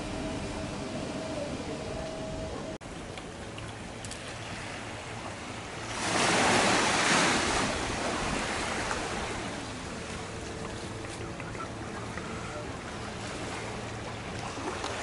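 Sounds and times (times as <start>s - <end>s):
waves lapping on pebble beach: 4.0s - 11.3s
wave breaking: 4.2s - 15.0s.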